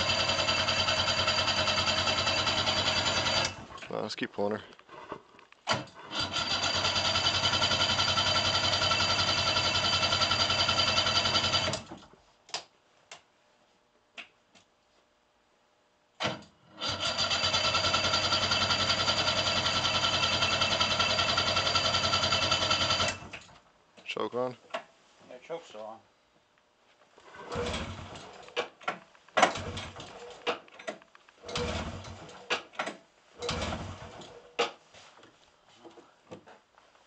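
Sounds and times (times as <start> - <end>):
engine cranking without starting: 0.0 - 3.8, 5.6 - 12.0, 16.3 - 23.5, 27.3 - 34.8.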